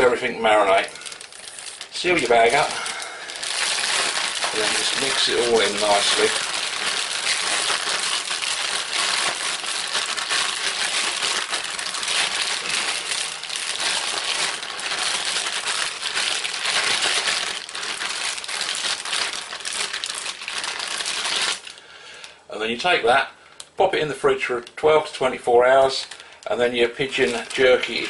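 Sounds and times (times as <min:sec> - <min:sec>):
plastic bag crinkling: 0:00.0 - 0:22.4, 0:24.6 - 0:28.0.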